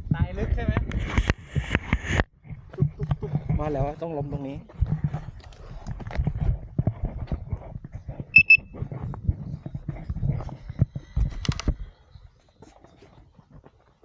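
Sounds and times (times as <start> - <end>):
unicycle handled in sand: 2.6 - 14.0
short high electronic beeps: 8.4 - 8.7.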